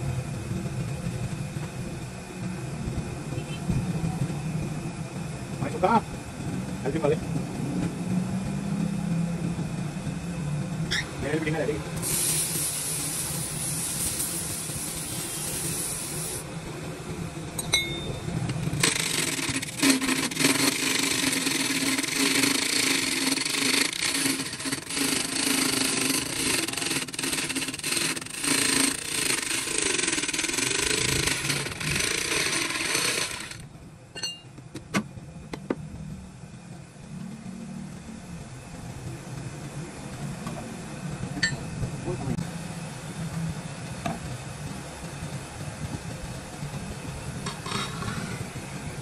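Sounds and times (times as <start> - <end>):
power tool cutting wood: 18.7 - 33.6.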